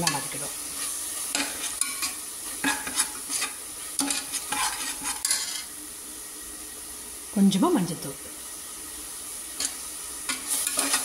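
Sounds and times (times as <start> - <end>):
sizzle of frying in oil: 0.0 - 11.0
spatula scraping and stirring paste: 0.1 - 5.7, 9.6 - 11.0.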